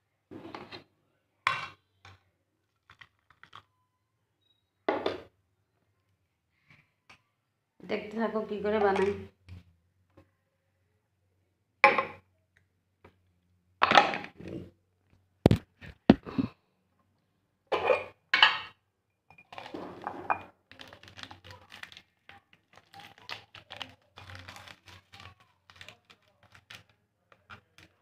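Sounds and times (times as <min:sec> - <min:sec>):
plastic sachets crinkling: 0:02.6 - 0:03.7, 0:19.5 - 0:19.8, 0:20.6 - 0:28.0.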